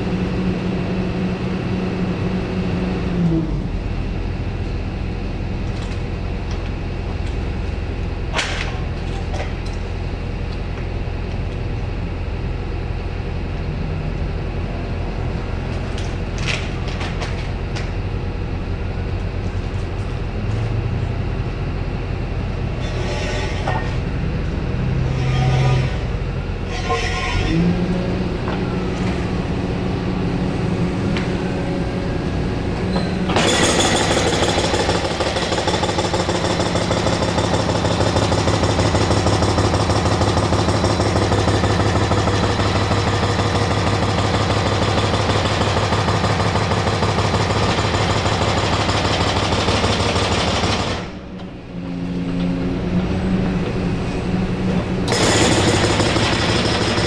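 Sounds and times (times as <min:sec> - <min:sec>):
excavator engine running: 0:00.0 - 0:57.0
hydraulic breaker hammering: 0:32.8 - 0:51.2, 0:54.8 - 0:57.0.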